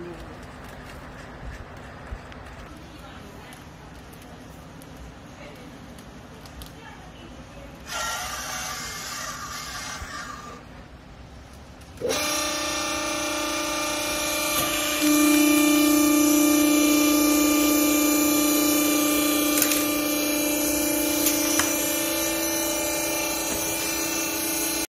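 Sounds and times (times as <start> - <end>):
hydraulic motor and pump humming: 11.8 - 24.9.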